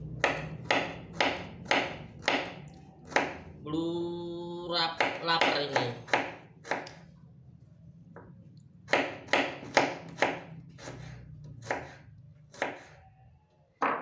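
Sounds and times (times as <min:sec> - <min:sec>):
faint low hum: 0:06.0 - 0:13.8.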